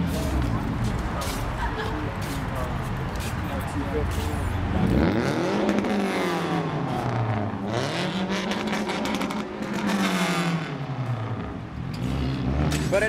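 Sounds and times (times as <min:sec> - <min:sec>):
car engine revving: 0:03.6 - 0:13.0.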